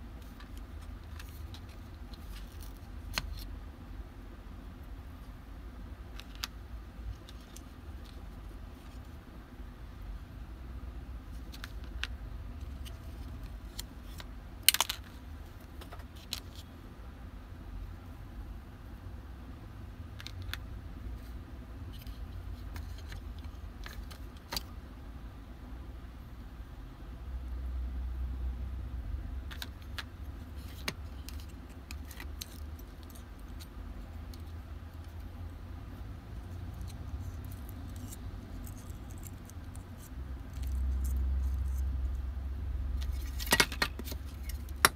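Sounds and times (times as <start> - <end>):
low steady rumble: 0.0 - 44.9
steady low hum: 0.0 - 44.9
tools and small parts clinking: 43.0 - 44.9.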